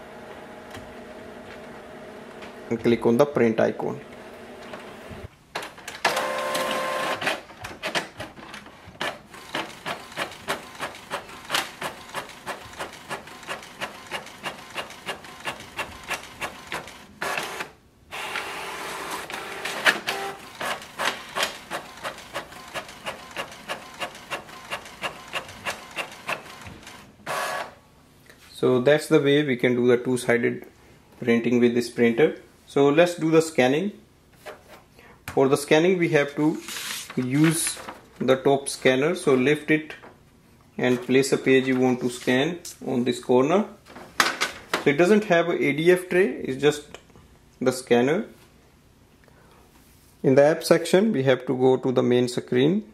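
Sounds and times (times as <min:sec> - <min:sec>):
printer feed motor whine: 0:06.1 - 0:07.2, 0:13.6 - 0:27.8.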